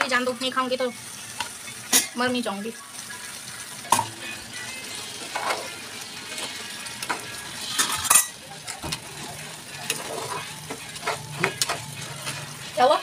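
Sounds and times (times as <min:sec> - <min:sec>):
curry sizzling: 0:00.0 - 0:13.0
spatula scraping metal pot: 0:05.2 - 0:06.5, 0:07.6 - 0:12.8.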